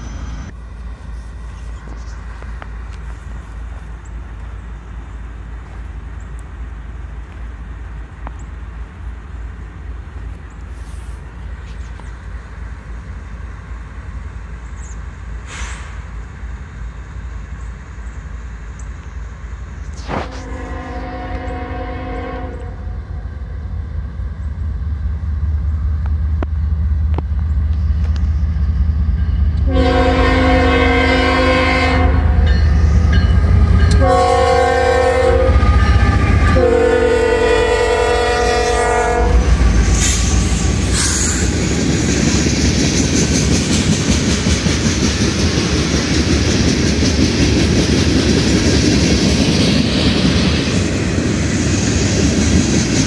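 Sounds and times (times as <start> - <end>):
diesel locomotives rumbling: 0.0 - 53.0
train wheels rushing: 19.0 - 53.0
train horn blasts: 20.0 - 23.2, 29.5 - 40.2
clickety-clack over rail joints: 25.6 - 29.9, 39.4 - 53.0.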